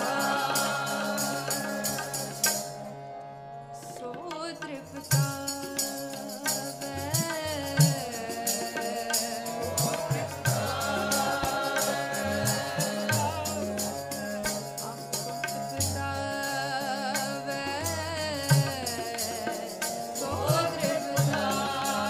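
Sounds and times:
jingling percussion beat: 0.0 - 2.8, 5.0 - 22.0
harmonium chords: 0.0 - 22.0
woman singing: 3.8 - 14.0, 15.8 - 22.0.

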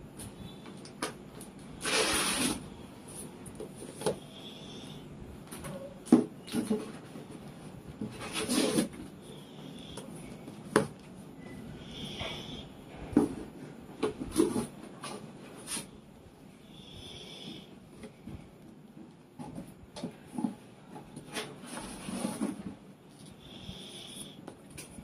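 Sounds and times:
books sliding and rustling: 8.1 - 9.0, 21.3 - 22.8.

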